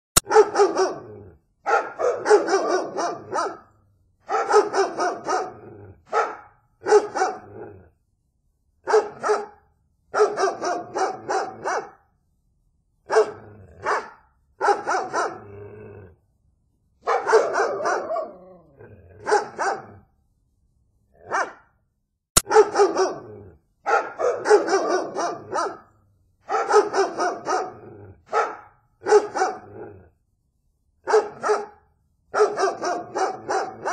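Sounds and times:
dogs barking: 0.2 - 7.7, 8.9 - 9.6, 10.2 - 12.0, 13.1 - 15.5, 17.0 - 20.0, 21.2 - 21.7, 22.4 - 29.9, 31.1 - 31.8, 32.4 - 33.9.

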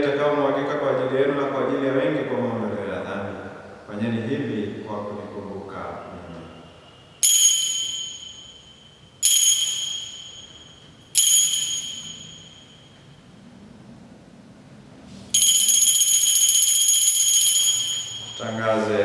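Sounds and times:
altar bells ringing: 6.9 - 13.3, 15.4 - 19.0.

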